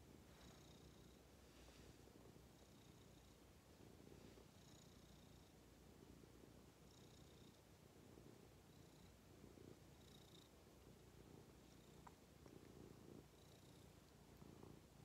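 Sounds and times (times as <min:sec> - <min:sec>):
cat purring: 0:00.0 - 0:15.0.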